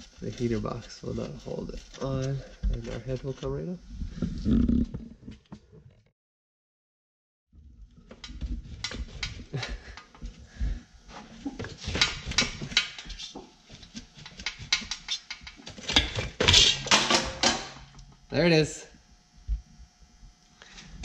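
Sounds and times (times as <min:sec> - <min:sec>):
metallic knocks and scraping: 0:11.7 - 0:18.0.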